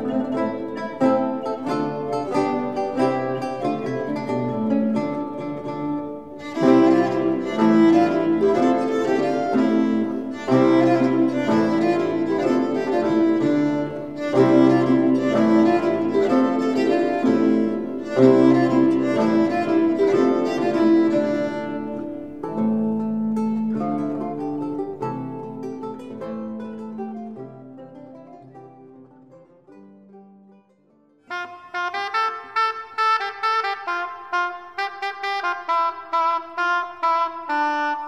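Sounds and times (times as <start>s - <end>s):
early court dance music: 0.0s - 26.2s, 31.3s - 38.0s.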